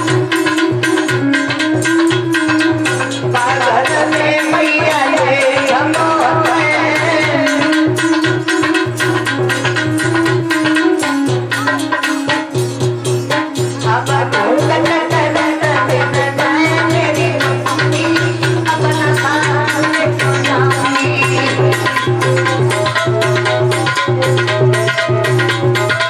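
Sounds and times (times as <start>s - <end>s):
fast hand-drum beat: 0.0s - 26.0s
wavering folk melody: 0.0s - 26.0s.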